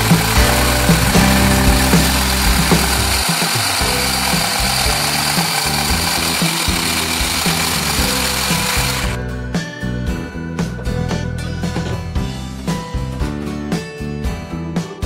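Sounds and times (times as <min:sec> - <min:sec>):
electric hand blender whisking: 0:00.0 - 0:09.2
background music: 0:00.0 - 0:15.0.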